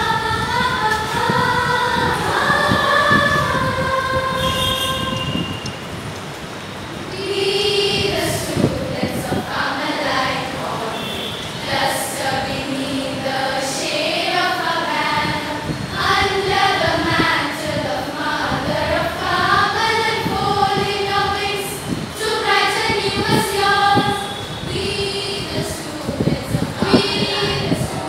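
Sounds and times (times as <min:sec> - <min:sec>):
girls' choir singing: 0:00.0 - 0:05.5, 0:07.0 - 0:28.0.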